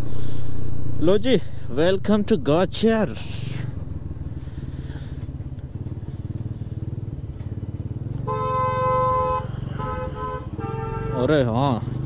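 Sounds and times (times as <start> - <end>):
scooter engine running: 1.6 - 12.0
vehicle horn honking: 8.2 - 11.6.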